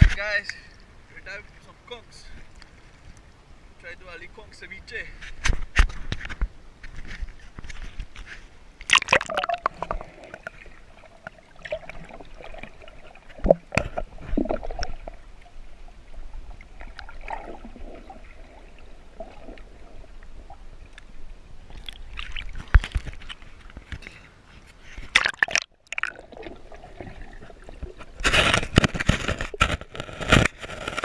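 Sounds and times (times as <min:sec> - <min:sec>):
water sloshing against camera: 0:05.1 - 0:31.0.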